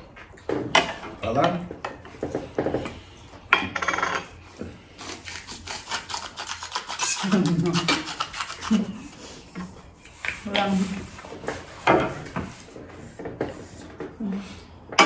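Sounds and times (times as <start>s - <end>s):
knife and fork scraping plate: 5.2s - 11.0s.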